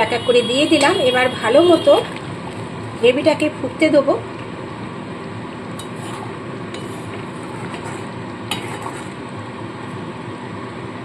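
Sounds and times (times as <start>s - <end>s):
curry bubbling in a wok: 4.3s - 11.0s.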